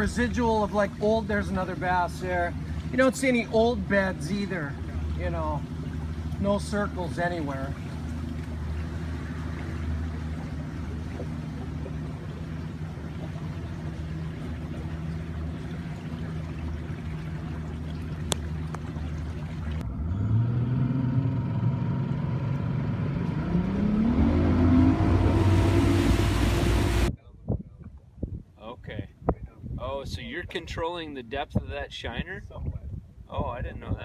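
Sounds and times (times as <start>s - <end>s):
outboard motor running: 0.0s - 27.1s.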